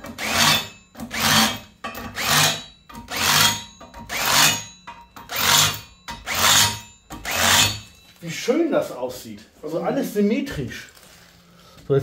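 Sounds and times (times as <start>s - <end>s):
cutter scraping on metal: 0.0s - 8.0s.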